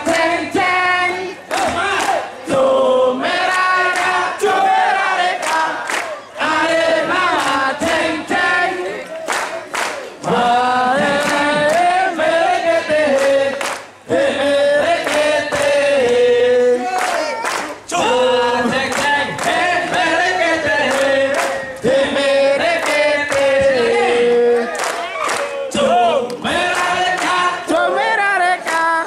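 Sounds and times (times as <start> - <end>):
group singing: 0.0 - 9.2, 10.0 - 29.0
sharp hand claps: 1.5 - 2.2, 5.4 - 6.2, 9.2 - 10.3, 11.2 - 11.9, 13.1 - 14.0, 15.0 - 16.2, 16.9 - 17.9, 18.9 - 20.1, 20.8 - 21.9, 22.7 - 23.7, 24.7 - 25.5, 26.2 - 27.5, 28.6 - 28.9.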